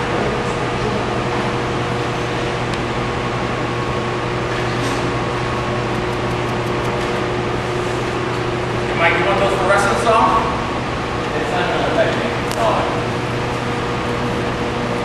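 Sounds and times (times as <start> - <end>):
machine hum: 1.6 - 11.5.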